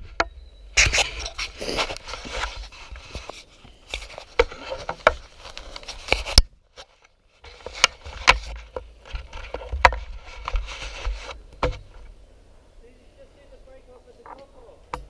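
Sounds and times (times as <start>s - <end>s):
scraping and rubbing: 0.8s - 12.1s
bicycle knocking and rattling: 7.4s - 12.0s.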